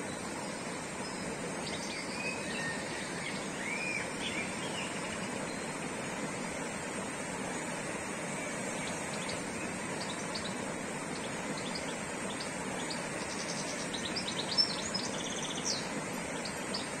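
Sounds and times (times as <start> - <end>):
stream rushing over rocks: 0.0 - 17.0
small birds chirping and trilling: 8.5 - 17.0.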